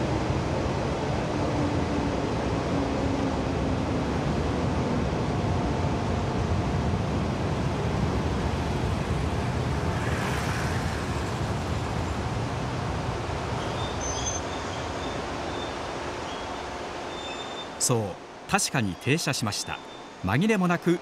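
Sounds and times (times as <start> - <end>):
train running on steel bridge: 0.0 - 21.0
high-pitched brake squeals: 17.1 - 17.8.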